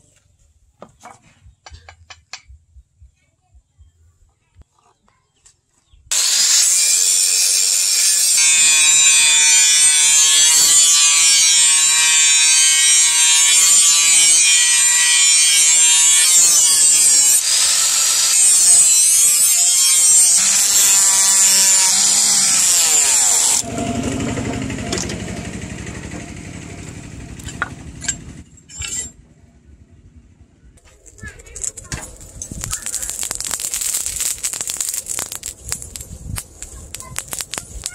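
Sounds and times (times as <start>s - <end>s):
angle grinder cutting steel: 6.1s - 29.1s, 30.9s - 37.9s.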